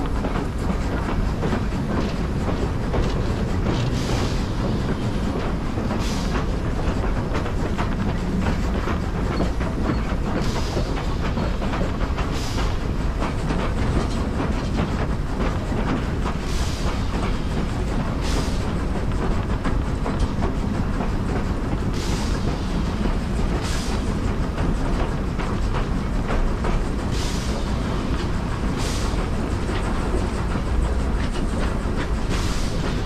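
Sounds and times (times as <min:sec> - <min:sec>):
steam train rumbling: 0:00.0 - 0:33.0
wheels clickety-clack: 0:00.0 - 0:33.0
brief steam hissing bursts: 0:12.3 - 0:12.8, 0:21.9 - 0:23.0, 0:23.6 - 0:24.2, 0:27.1 - 0:28.1, 0:28.7 - 0:29.4, 0:32.3 - 0:33.0.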